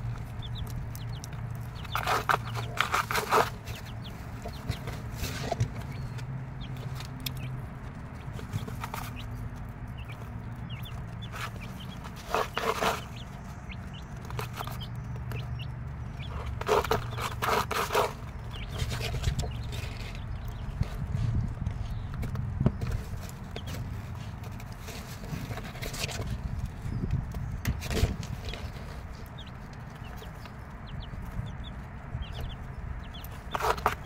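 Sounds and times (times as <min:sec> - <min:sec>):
hen clucking: 0:00.0 - 0:20.9, 0:28.3 - 0:34.0.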